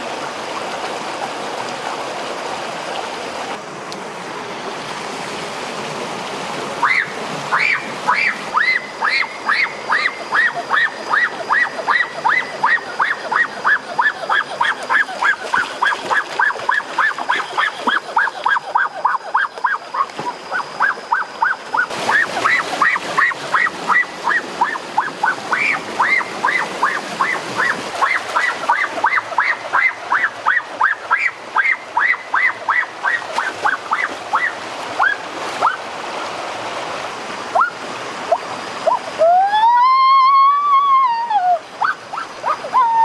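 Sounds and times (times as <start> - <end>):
stream water rushing: 0.0 - 43.0
long rising and falling cry: 38.9 - 43.0.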